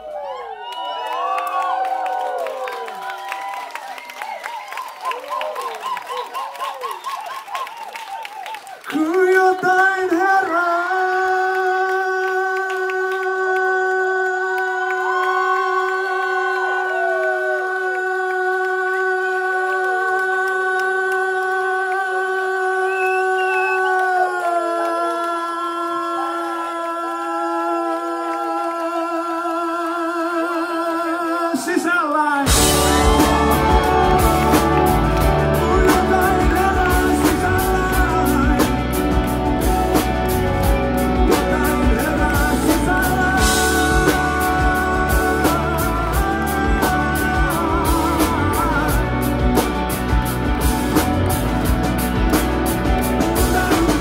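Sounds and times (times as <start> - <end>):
person singing a long note: 9.0 - 31.5, 32.4 - 39.7
other voices singing: 9.0 - 51.3
rock band playing: 32.5 - 54.0.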